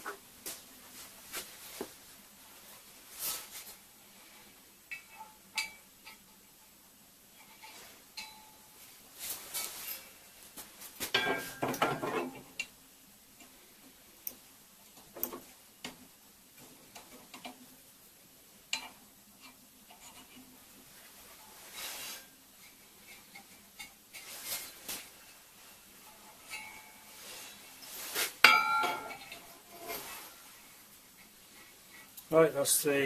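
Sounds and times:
steel parts clinking: 28.4 - 30.1
metal on metal rattle: 28.5 - 30.2.

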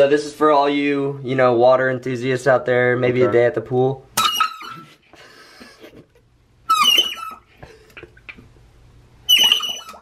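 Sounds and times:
squeaky bulb horn honks underwater: 6.7 - 7.4, 9.3 - 10.0.

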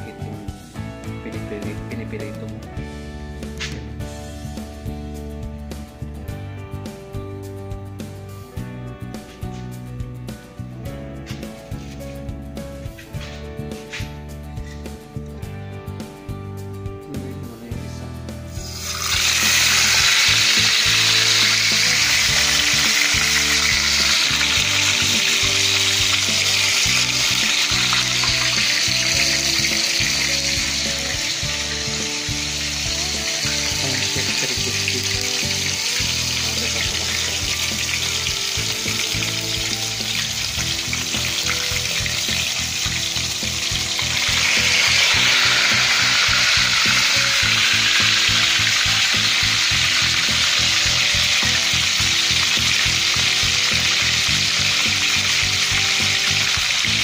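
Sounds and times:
fish sizzling in hot oil: 18.5 - 57.0.

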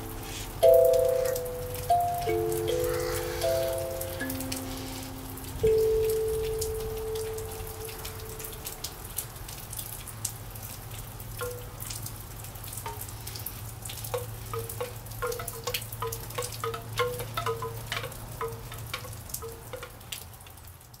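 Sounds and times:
kalimba notes: 0.0 - 8.8, 11.4 - 11.8, 14.1 - 20.1
rain pattering: 0.0 - 21.0.

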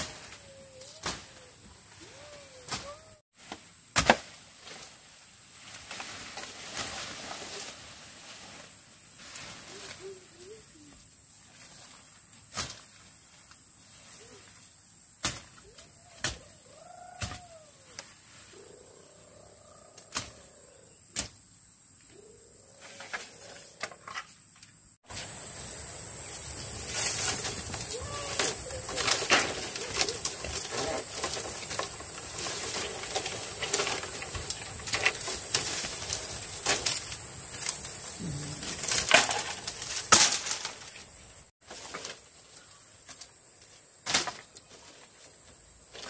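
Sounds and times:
bamboo poles rustling and clattering: 0.0 - 19.0, 22.7 - 46.0
machete chopping brush: 2.7 - 4.9, 15.2 - 15.6, 16.2 - 16.4
birds calling: 25.8 - 35.6.

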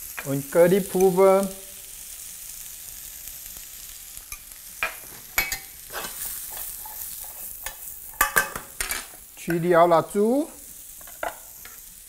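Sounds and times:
vegetables sizzling in oil: 0.0 - 12.0
spatula scraping a pan: 4.3 - 9.2.

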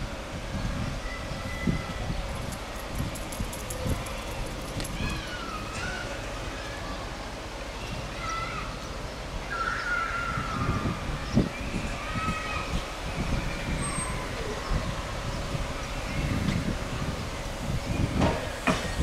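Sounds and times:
steam locomotive thuds: 17.9 - 19.0.

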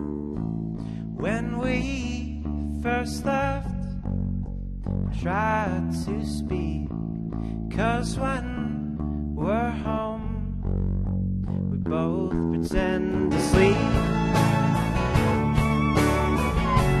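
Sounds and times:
person singing: 1.2 - 3.9, 11.7 - 17.0
folk band guitars playing: 12.8 - 17.0.

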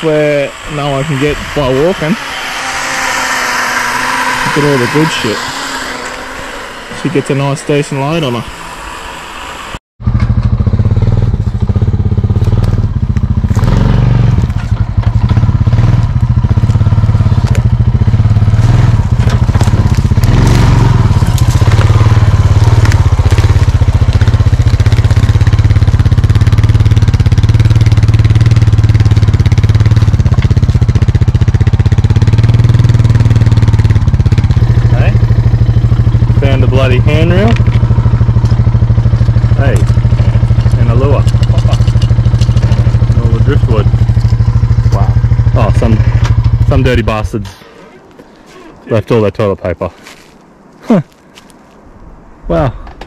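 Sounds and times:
quad bike engine running: 0.0 - 47.5
crackling and clatter: 11.4 - 34.8, 37.4 - 47.6.

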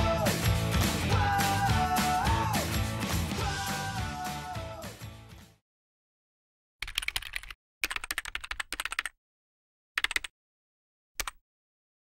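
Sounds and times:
typing on computer keyboard: 6.8 - 9.2, 10.0 - 10.3, 11.2 - 11.4.

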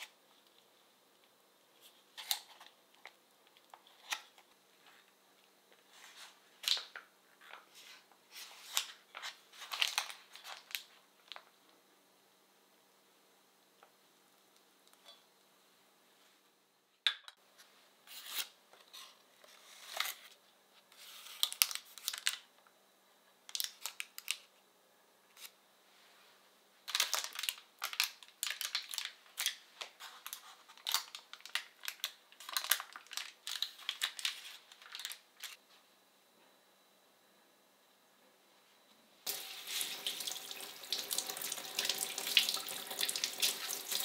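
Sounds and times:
baking paper crinkling and tearing: 7.6 - 11.4, 18.1 - 22.5, 26.8 - 35.6.

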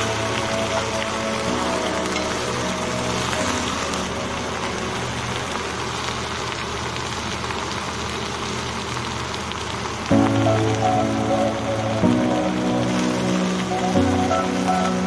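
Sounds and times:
background music: 0.0 - 6.0, 10.1 - 15.0
food sizzling in oil: 0.0 - 15.0.

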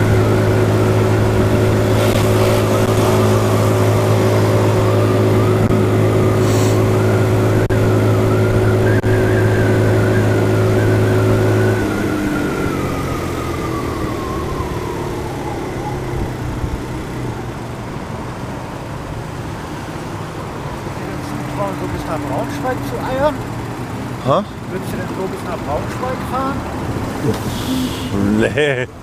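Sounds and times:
thin whine: 0.0 - 14.9, 27.1 - 28.5
motor scooter engine: 0.0 - 18.3.

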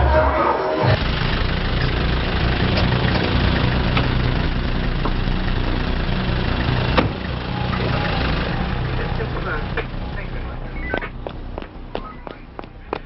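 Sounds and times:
diesel engine idling: 0.0 - 13.0
car door shutting: 7.0 - 7.9.

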